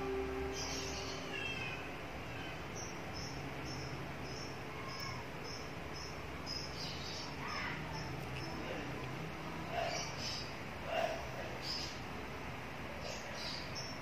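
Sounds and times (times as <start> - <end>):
low background hiss: 0.0 - 14.0
cricket chirping: 2.7 - 6.8.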